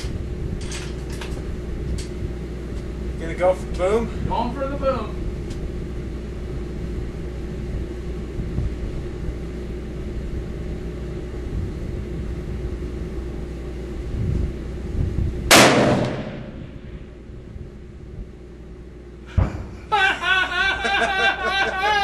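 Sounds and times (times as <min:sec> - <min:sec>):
low background rumble: 0:00.0 - 0:22.0
rifle shot: 0:15.5 - 0:16.8.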